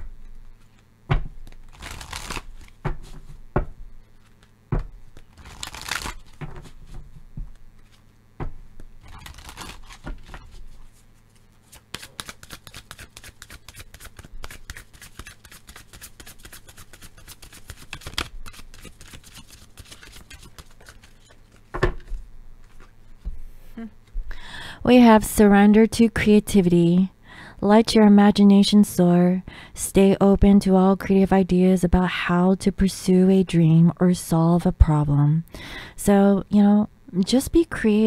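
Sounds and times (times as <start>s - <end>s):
fast card clicks: 1.4s - 2.8s, 5.2s - 6.4s, 11.6s - 21.6s
cards sliding swishes: 9.1s - 21.7s
cards knocking: 11.7s - 22.8s.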